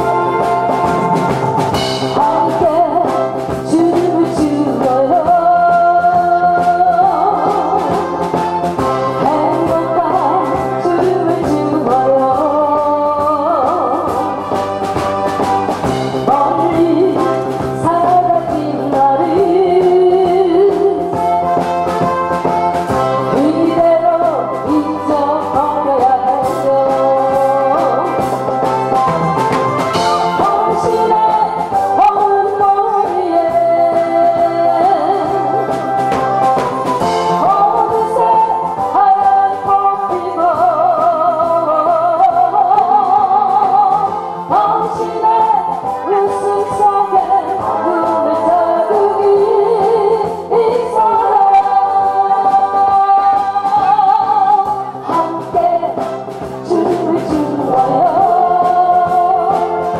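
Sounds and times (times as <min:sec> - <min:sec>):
woman singing into microphone: 0:00.0 - 0:14.7, 0:15.4 - 0:22.2, 0:22.9 - 0:28.8, 0:29.9 - 0:59.9
instrumental accompaniment: 0:00.0 - 0:59.9.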